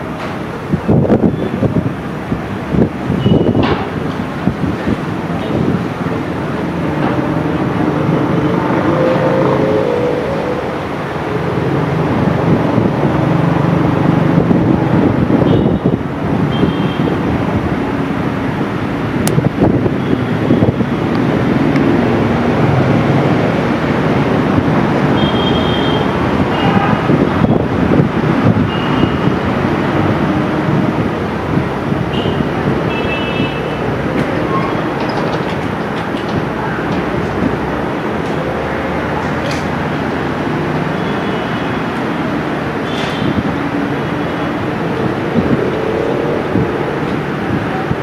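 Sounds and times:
diesel locomotive engine droning: 0:05.8 - 0:15.2
diesel locomotive engine rumbling: 0:33.6 - 0:40.5.

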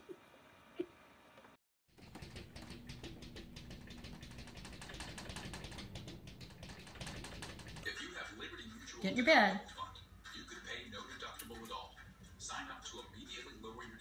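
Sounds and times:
cat claws tapping on glass: 0:02.0 - 0:07.9.

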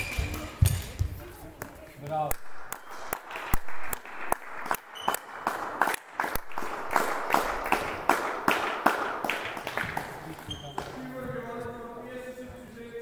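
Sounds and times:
small crowd applauding: 0:02.7 - 0:10.5.

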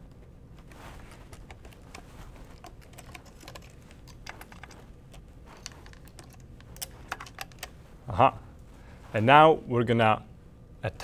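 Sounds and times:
clicks and taps of wire connectors: 0:01.3 - 0:07.7.

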